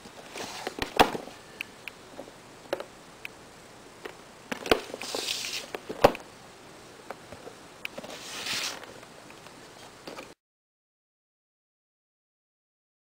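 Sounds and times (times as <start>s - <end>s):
cardboard lid sliding rustle: 0.2s - 1.0s, 4.8s - 5.8s, 8.0s - 8.9s.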